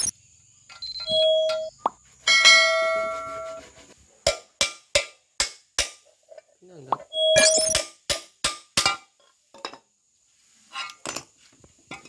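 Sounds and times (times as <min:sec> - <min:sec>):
metal ringing like a bell: 0:02.3 - 0:03.2.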